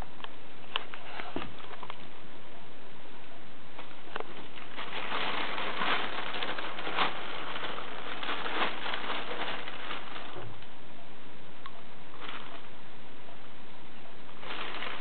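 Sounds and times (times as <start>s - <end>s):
plastic bag crinkling: 3.8s - 10.7s, 12.2s - 12.7s, 14.4s - 15.0s.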